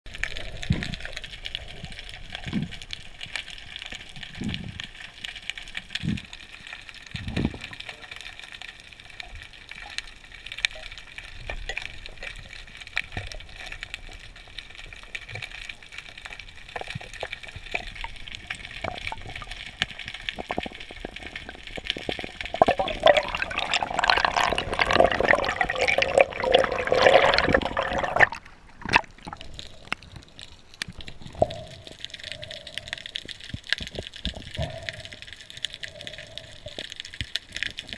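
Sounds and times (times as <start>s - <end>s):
air bubbles rushing: 17.1s - 30.3s.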